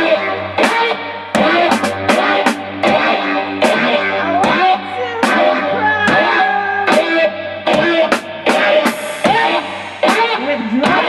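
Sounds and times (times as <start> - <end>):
drum kit beat: 0.0 - 11.0
electric guitar: 0.0 - 11.0
person singing: 3.8 - 11.0.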